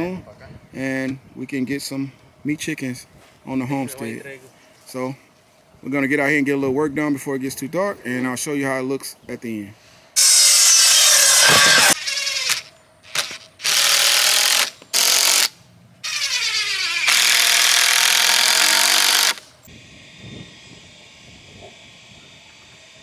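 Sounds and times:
miter saw cutting lumber: 10.2s - 19.5s.

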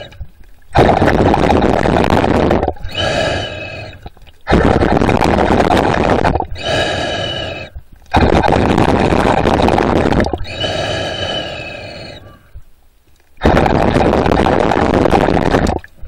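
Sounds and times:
underwater breathing: 0.0s - 1.2s, 1.8s - 12.7s.

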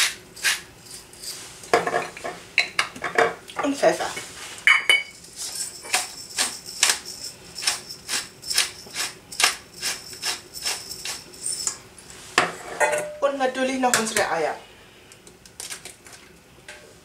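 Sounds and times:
pepper mill grinding: 0.0s - 1.4s, 5.2s - 11.8s.

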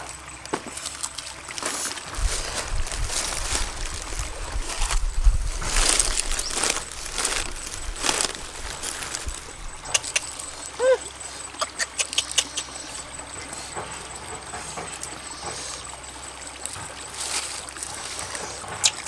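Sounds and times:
dogs chewing: 0.0s - 19.0s
stream trickling: 0.0s - 19.0s
low rumble: 2.1s - 10.6s.

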